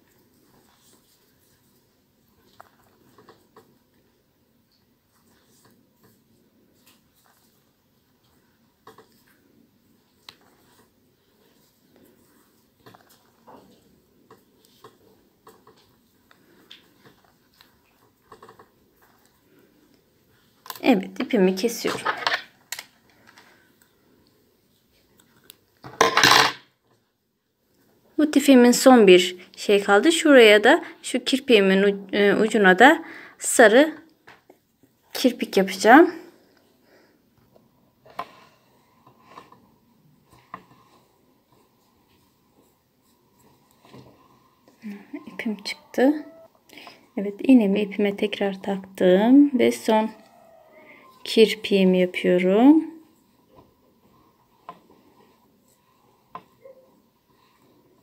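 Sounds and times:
soft clicks and rubs: 4.7s - 20.8s.

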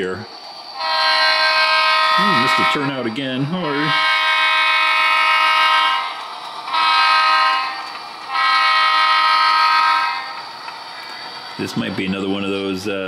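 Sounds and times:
toy train horn blasts: 0.8s - 10.5s.

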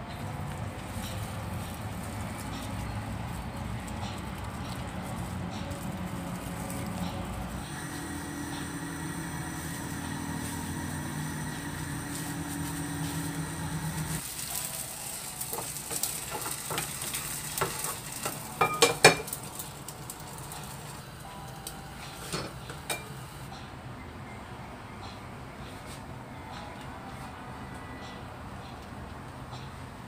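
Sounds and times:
steady low hum: 4.0s - 14.2s
food sizzling in a frying pan: 7.6s - 21.2s.

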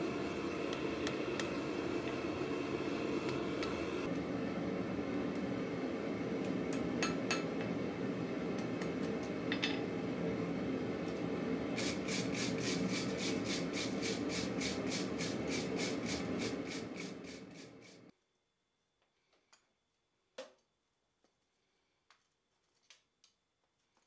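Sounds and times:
wire brush scrubbing metal: 11.8s - 18.1s.

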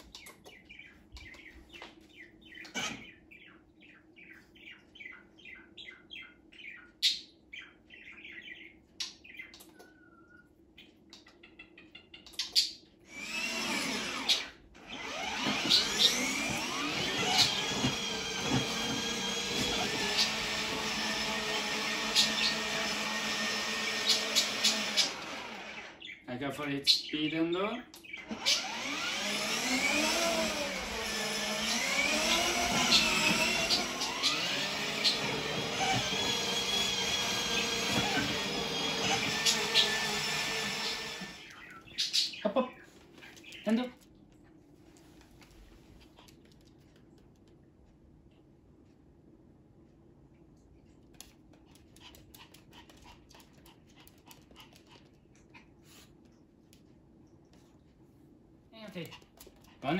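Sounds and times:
toy car electric motors whining: 13.1s - 26.0s, 28.2s - 41.6s
dog panting faintly: 51.2s - 56.3s.

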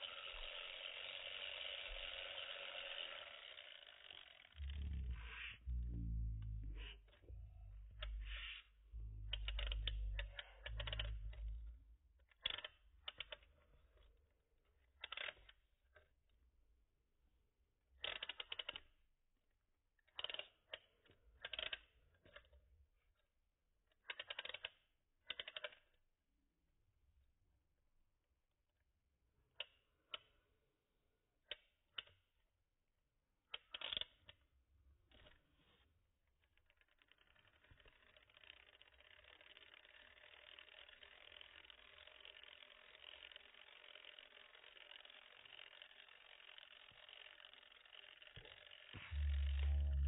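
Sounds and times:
plastic winding clicks: 0.0s - 5.4s, 9.0s - 13.5s, 15.0s - 16.0s, 18.0s - 19.0s, 20.0s - 22.6s, 24.0s - 26.0s, 33.5s - 34.4s, 36.5s - 49.6s
low handling rumble: 4.6s - 12.0s, 49.1s - 50.0s.

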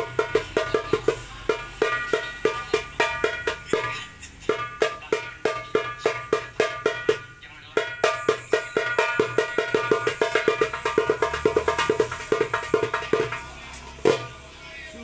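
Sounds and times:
hand drum strokes: 7.8s - 14.3s.

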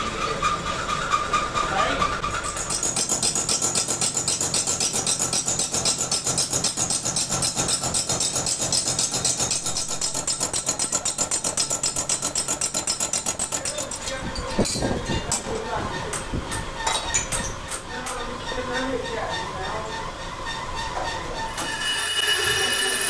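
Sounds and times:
cutter hitting metal rhythmically: 0.2s - 23.0s
lathe running: 17.8s - 23.0s.

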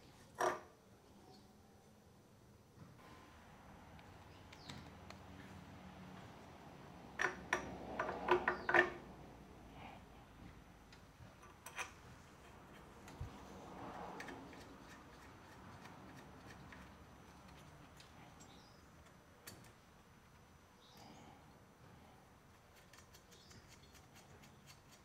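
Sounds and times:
small metal parts clicking: 22.7s - 25.0s.

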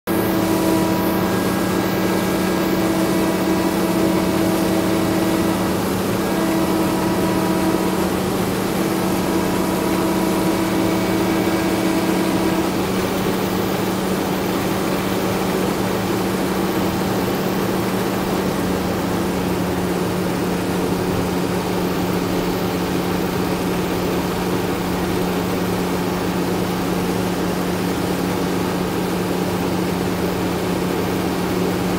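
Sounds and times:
combine engine hum: 0.0s - 31.9s
high steady tone: 0.1s - 19.6s.

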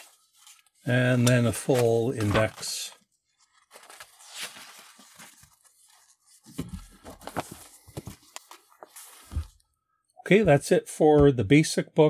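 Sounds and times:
book pages rustling: 0.0s - 9.6s
book being closed and handled: 1.2s - 2.7s, 6.4s - 9.6s.

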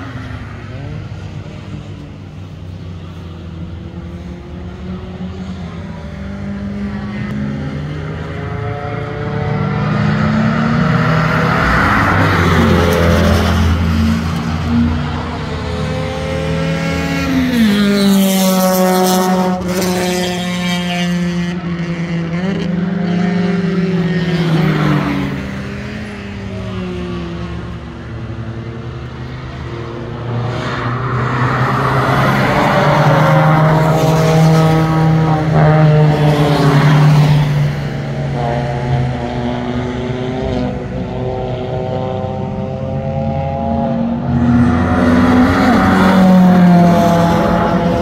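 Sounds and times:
car engines racing: 0.0s - 48.0s.

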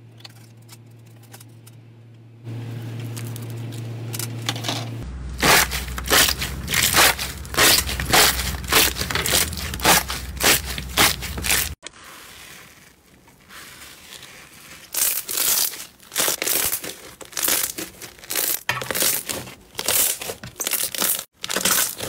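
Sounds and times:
low steady hum: 0.0s - 11.8s
slime crackling squishes: 5.3s - 22.0s.

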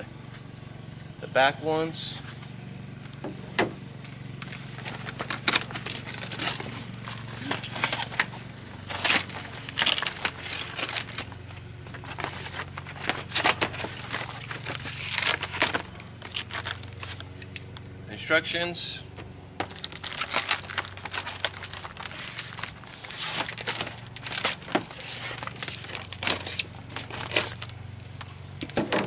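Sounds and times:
packaging crinkling and rustling: 4.4s - 17.7s, 19.6s - 29.0s.

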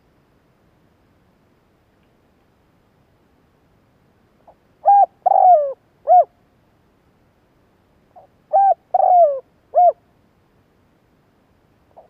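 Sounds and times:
dove cooing: 4.8s - 6.3s, 8.2s - 10.0s.

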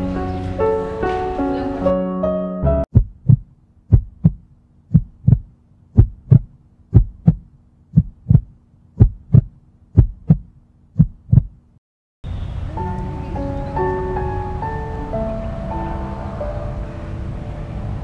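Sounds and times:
music: 0.0s - 2.9s, 12.7s - 18.0s
heartbeat thumps: 2.9s - 11.6s.

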